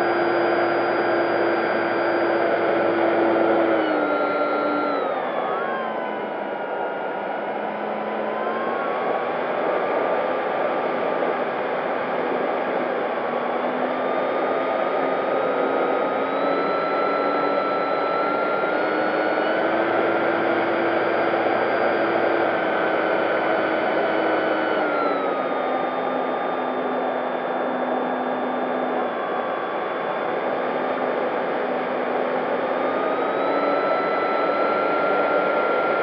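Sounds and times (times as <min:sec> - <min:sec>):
rc plane motor whining: 0:00.0 - 0:07.1, 0:13.8 - 0:31.6.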